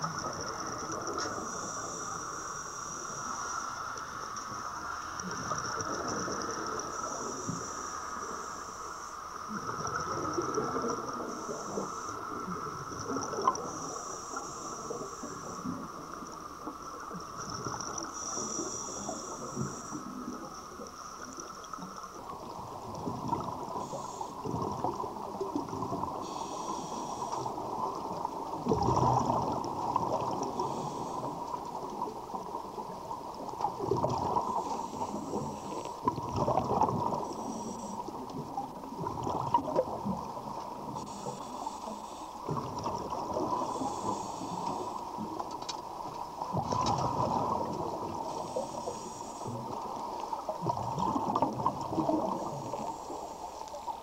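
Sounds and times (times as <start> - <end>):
steady hiss: 0.0 - 36.2, 36.8 - 54.0
underwater regulator breathing bubbling: 25.7 - 27.8, 28.6 - 32.1, 40.9 - 45.1.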